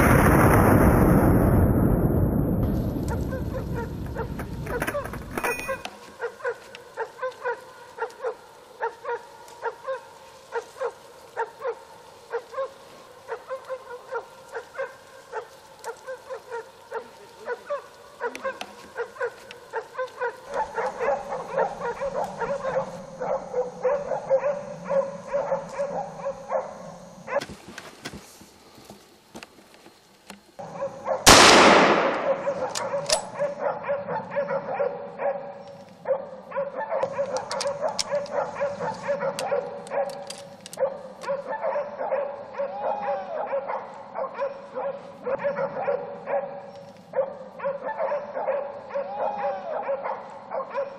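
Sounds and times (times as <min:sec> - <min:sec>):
dogs barking: 0:03.0 - 0:05.1, 0:05.7 - 0:27.5, 0:30.6 - 0:50.9
rifle shot: 0:31.3 - 0:33.4.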